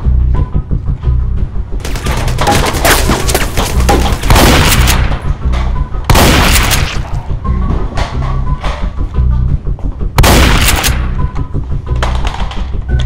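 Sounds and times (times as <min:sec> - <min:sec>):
music with steady low beat: 0:00.0 - 0:02.6, 0:03.4 - 0:13.0
rapid gunfire: 0:01.8 - 0:05.2, 0:06.1 - 0:07.2, 0:10.2 - 0:11.2.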